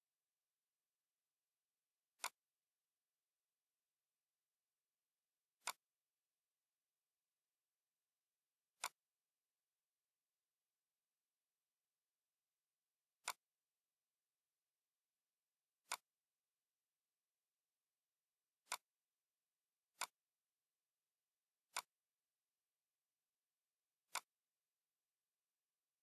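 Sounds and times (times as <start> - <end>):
computer mouse clicks: 2.1 - 2.5, 5.6 - 5.9, 8.7 - 9.1, 13.2 - 13.5, 15.8 - 16.2, 18.6 - 19.0, 19.9 - 20.3, 21.7 - 22.0, 24.0 - 24.4.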